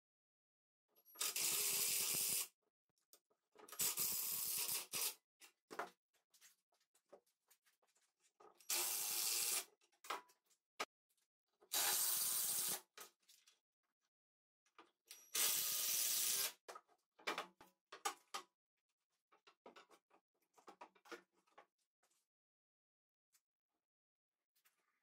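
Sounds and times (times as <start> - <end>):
cordless drill driving screws: 8.7 - 9.6, 11.7 - 12.8, 15.3 - 16.5.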